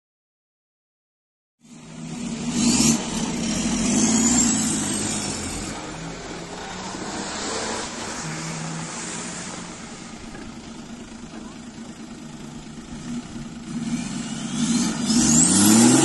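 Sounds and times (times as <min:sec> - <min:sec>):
engine revving hard: 0:01.7 - 0:10.3, 0:13.0 - 0:16.0
high whine: 0:03.0 - 0:14.6.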